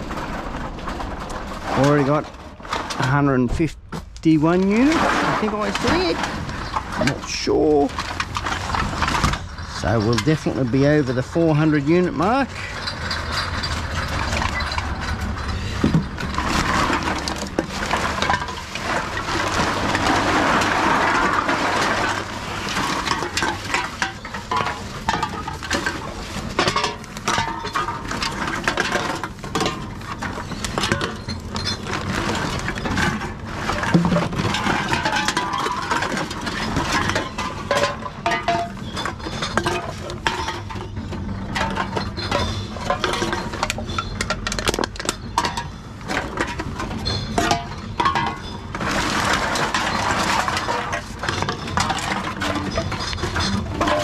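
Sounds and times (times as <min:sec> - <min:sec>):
plastic bag rustling: 0:00.0 - 0:45.0
vending machine mechanism running: 0:00.0 - 0:54.0
drink cans clinking: 0:04.4 - 0:54.0.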